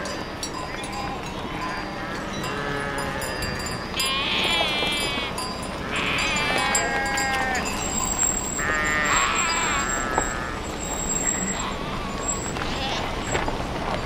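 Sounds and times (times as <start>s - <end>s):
sheep bleating: 4.0s - 7.7s, 8.6s - 10.6s.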